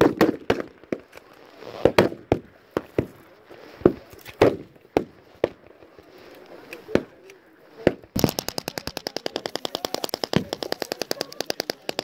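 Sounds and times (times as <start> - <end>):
rifle shots: 8.1 - 12.0.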